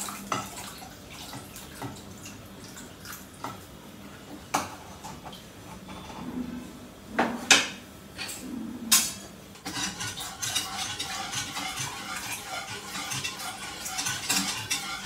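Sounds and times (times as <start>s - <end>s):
utensil stirring scraping pan: 9.6s - 15.0s.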